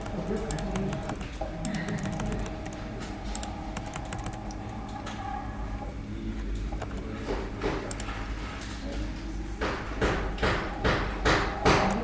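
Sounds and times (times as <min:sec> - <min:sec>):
keyboard keystrokes: 0:00.0 - 0:04.6, 0:07.7 - 0:08.1
steady low hum: 0:00.0 - 0:12.0.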